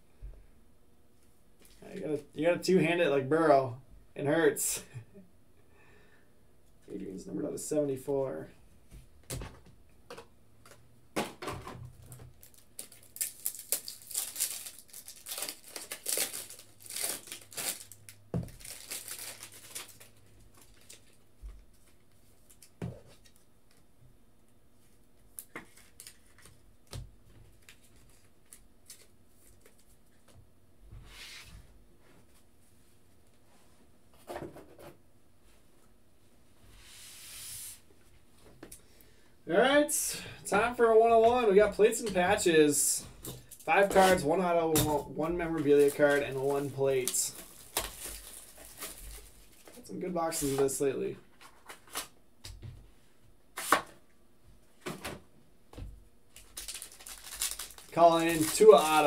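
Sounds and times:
packaging crinkling and tearing: 12.3 - 21.8, 25.3 - 27.0, 45.6 - 49.8, 56.3 - 59.0.

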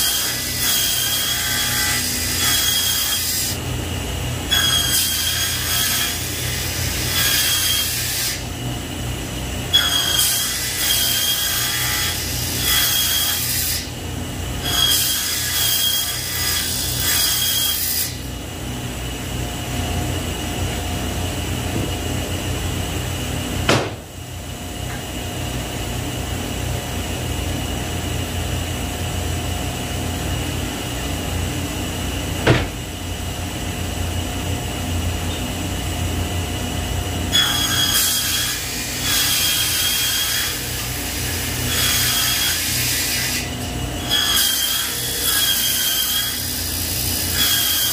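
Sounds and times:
table saw cutting boards: 0.0 - 18.4, 36.6 - 47.9
sharp knocks: 23.6 - 24.0.

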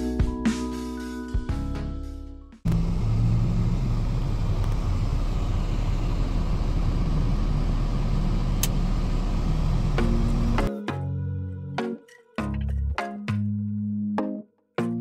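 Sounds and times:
car rumbling on the road: 2.7 - 10.7.

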